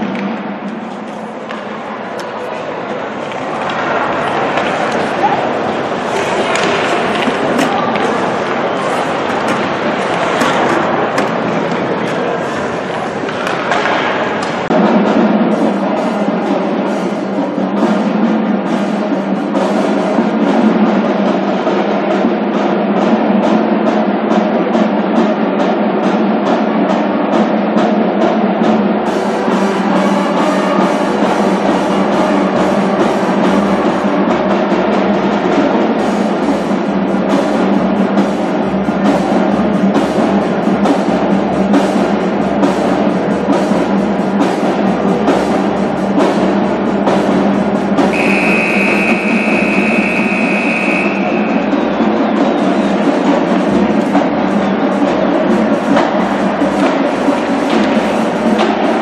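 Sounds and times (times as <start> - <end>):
drum-driven music: 13.4 - 59.0
high steady tone: 48.1 - 51.7.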